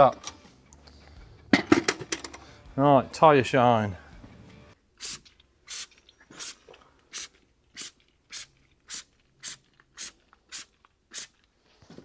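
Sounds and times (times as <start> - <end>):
trigger spray bottle spraying: 5.0 - 11.4.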